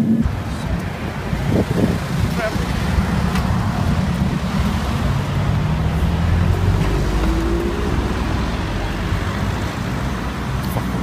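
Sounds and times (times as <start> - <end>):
low rumble of road noise: 0.0 - 11.0
vehicle engine passing close: 1.6 - 10.5.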